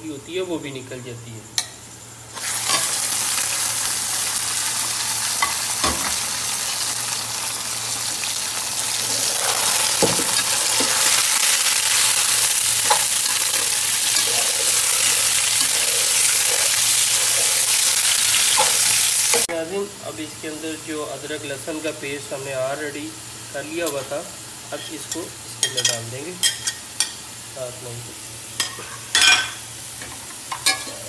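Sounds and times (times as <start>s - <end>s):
chicken sizzling in hot oil: 2.3s - 19.5s.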